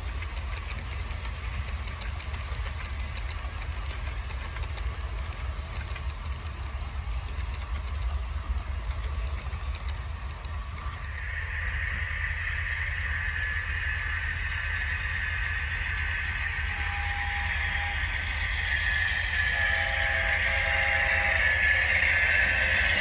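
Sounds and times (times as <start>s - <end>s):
constant low hum: 0.0s - 23.0s
model train motor whine: 10.7s - 23.0s.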